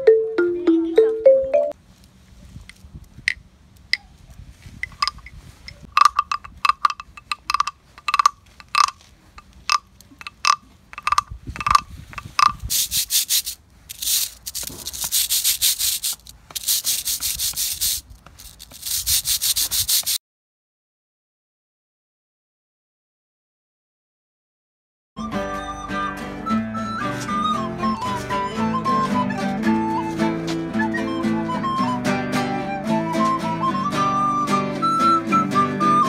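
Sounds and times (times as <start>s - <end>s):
wooden claves clicking: 4.8s - 20.2s
wooden guiro rasping: 4.8s - 20.2s, 26.4s - 31.8s.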